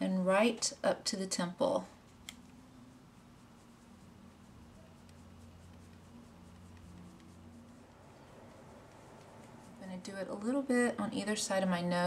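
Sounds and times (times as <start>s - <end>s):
low steady hum: 0.0s - 12.0s
makeup brush scratching on skin: 1.9s - 12.0s.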